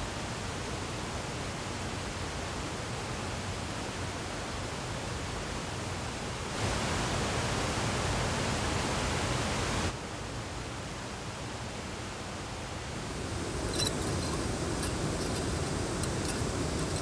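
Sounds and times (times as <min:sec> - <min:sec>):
stream rushing over rocks: 0:13.0 - 0:17.0.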